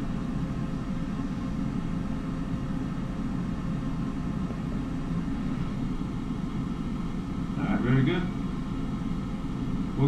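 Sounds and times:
steady low hum and rumble: 0.0s - 10.0s.

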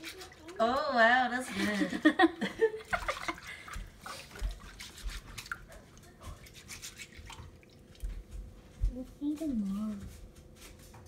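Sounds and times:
rice scrubbed by hand in water: 0.0s - 0.8s, 2.9s - 7.6s
water splashes and drips: 2.9s - 8.4s.

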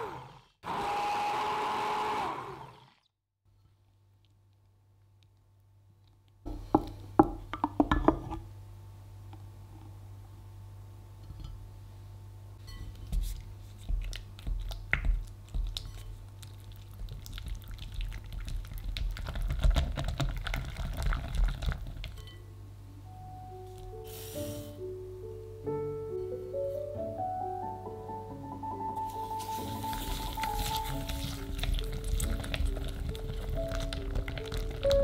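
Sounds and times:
whisk stirring cream cheese: 29.6s - 34.9s.

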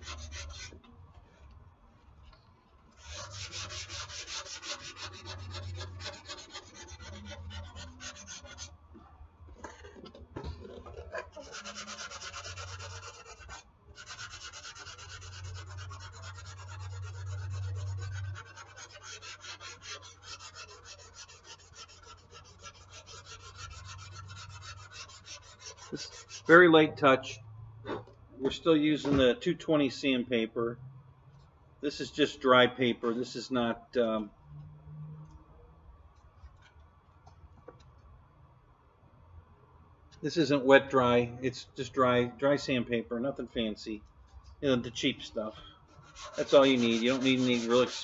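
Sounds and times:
sandpaper scratching back and forth: 0.0s - 0.8s, 3.0s - 8.7s, 11.0s - 26.6s, 45.9s - 48.0s.

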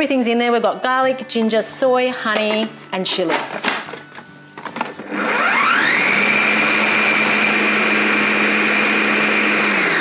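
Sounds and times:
food processor motor whining: 5.0s - 10.0s.

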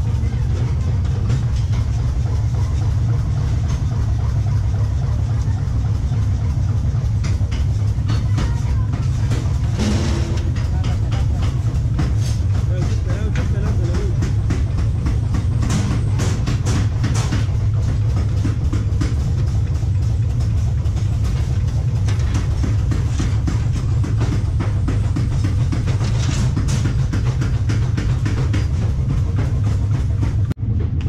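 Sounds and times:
irregular metallic clatter: 0.0s - 31.0s
loud low rumble: 0.0s - 31.0s.

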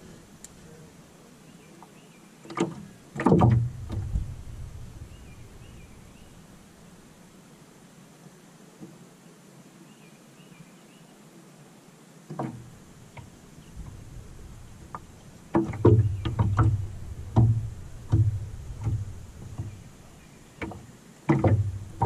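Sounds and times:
waves slapping boat hull: 2.4s - 7.3s, 12.3s - 22.0s.

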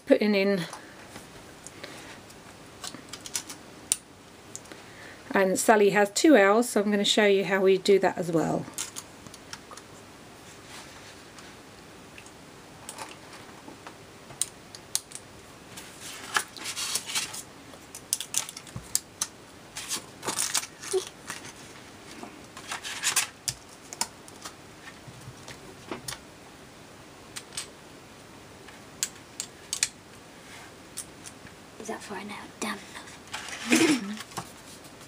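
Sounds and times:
plastic scraping rustles: 15.8s - 17.5s, 19.7s - 25.6s, 33.0s - 35.0s.

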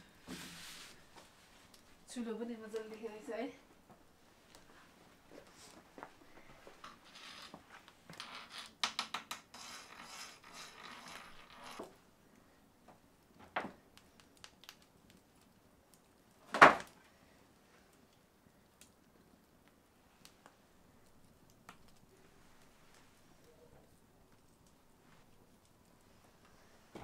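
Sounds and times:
scraping on stone: 8.3s - 11.9s.

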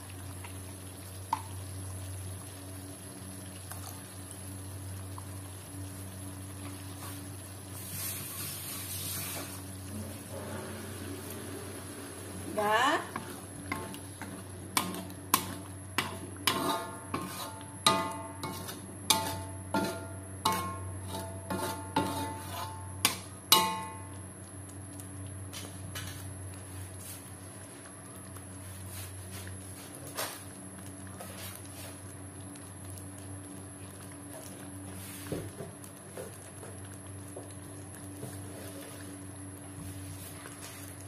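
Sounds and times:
low steady hum: 0.0s - 41.0s
spatula knocking on wok: 14.7s - 24.1s.

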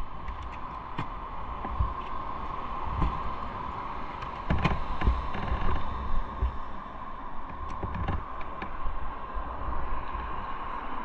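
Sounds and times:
wind noise on microphone: 0.0s - 11.0s
motorcycle engine whine and rumble: 2.9s - 6.8s.

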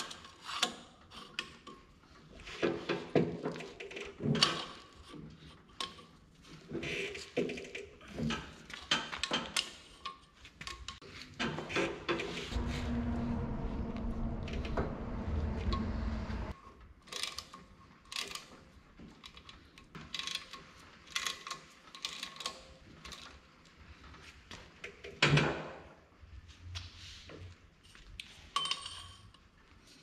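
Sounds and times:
loud metal clank: 12.5s - 16.6s
steady low hum: 12.5s - 16.6s.

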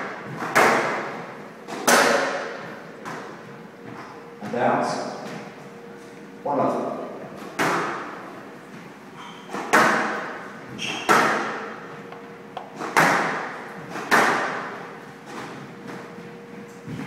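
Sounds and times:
squash ball cracks echoing: 0.0s - 3.3s, 9.6s - 14.8s.

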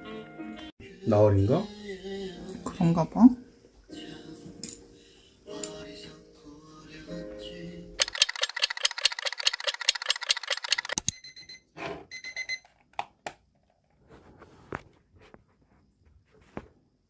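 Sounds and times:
alarm clock beeping: 8.0s - 12.7s
soft rustles and clicks: 13.6s - 16.8s.

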